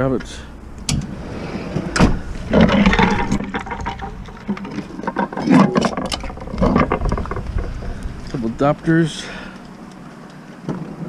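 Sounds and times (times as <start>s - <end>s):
scrap metal knocking and scraping: 1.0s - 8.5s.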